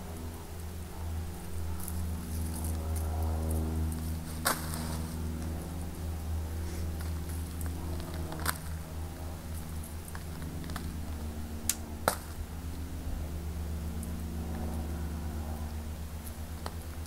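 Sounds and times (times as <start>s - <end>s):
low motor hum: 0.0s - 17.0s
garden tool working soil on tarp: 1.5s - 11.2s.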